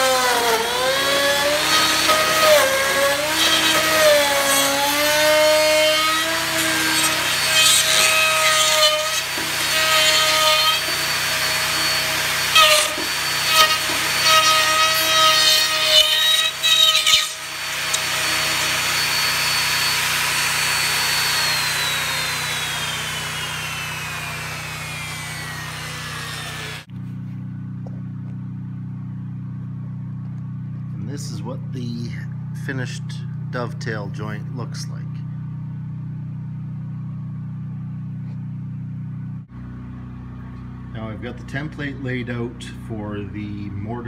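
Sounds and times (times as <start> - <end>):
router whining and cutting wood: 0.0 - 26.9
low hum: 17.4 - 44.0.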